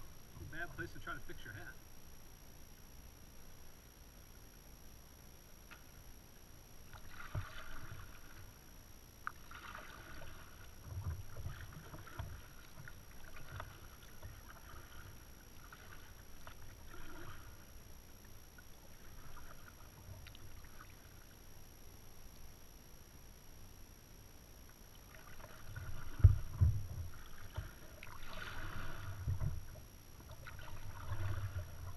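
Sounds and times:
kayak paddle splashing: 6.9 - 8.6, 9.3 - 21.4, 25.0 - 31.9.

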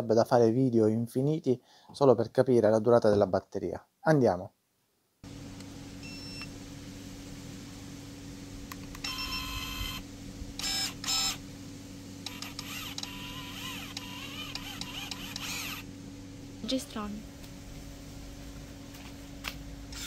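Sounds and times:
pruning shears motor whining: 8.9 - 10.0, 10.6 - 11.4, 12.2 - 15.9.

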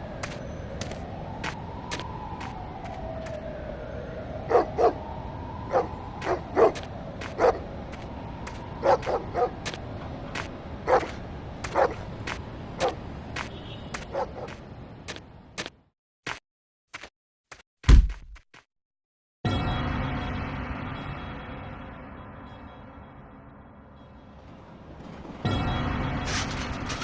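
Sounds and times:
dog barking: 4.5 - 5.0, 5.7 - 7.6, 8.8 - 9.6, 10.9 - 12.0, 12.8 - 13.0, 14.0 - 14.6.

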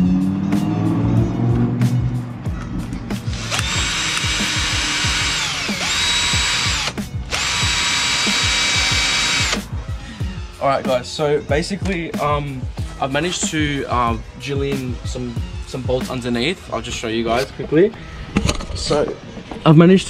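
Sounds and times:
cordless drill motor whine: 3.3 - 9.6.

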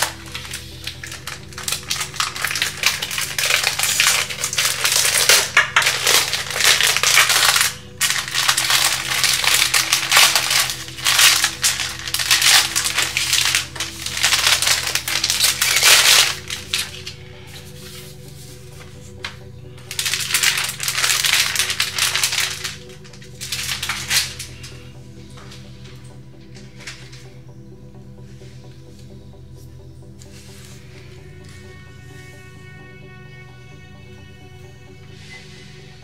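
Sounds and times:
plastic bag crinkling: 0.0 - 24.8.

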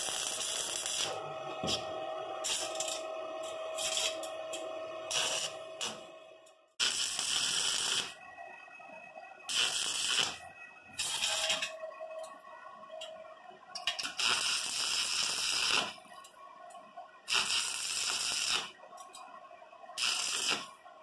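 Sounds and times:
welding arc crackling and sizzling: 0.0 - 6.1, 6.8 - 8.2, 9.5 - 10.4, 11.0 - 11.7, 13.9 - 16.0, 17.3 - 18.8, 20.0 - 20.7.

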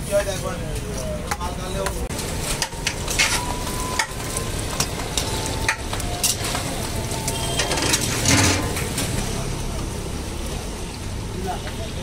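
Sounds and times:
deep-frying in hot oil: 0.0 - 12.0
metal spatula scraping wok: 2.2 - 6.7, 7.3 - 9.2.

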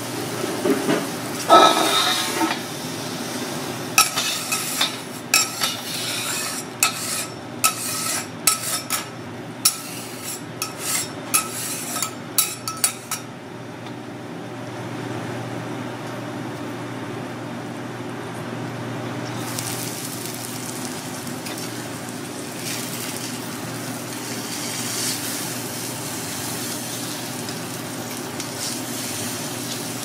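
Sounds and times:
metal spatulas clinking on griddle: 4.0 - 13.3
steak sizzling: 19.4 - 30.0.

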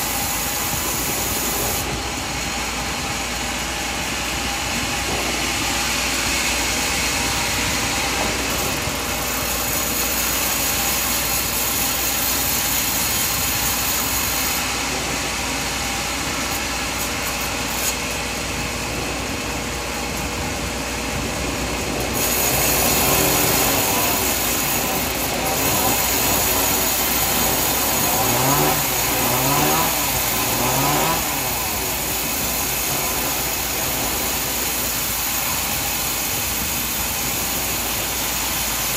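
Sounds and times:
sawmill machinery running: 0.0 - 38.9
short rising whines: 18.0 - 38.9.

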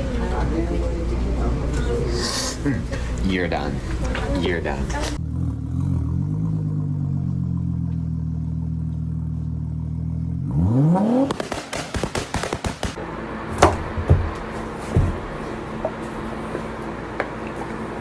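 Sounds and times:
engine idling and revving: 4.6 - 13.6.

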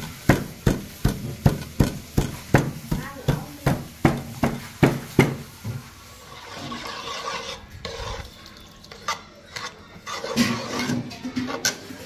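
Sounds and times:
metal spoon stirring in a pot: 0.0 - 12.0.

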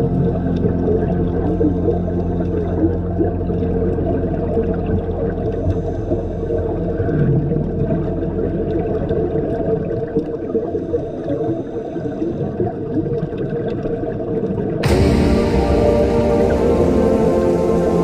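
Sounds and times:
underwater low rumble: 0.0 - 18.0
rain-like hiss: 14.8 - 18.0
steady humming tones: 14.8 - 18.0.

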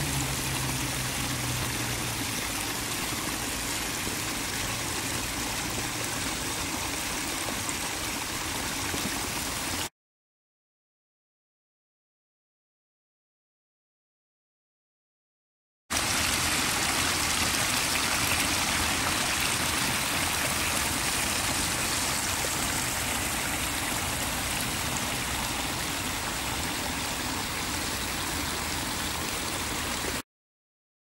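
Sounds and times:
stream running over rocks: 0.0 - 9.9, 15.9 - 30.2.

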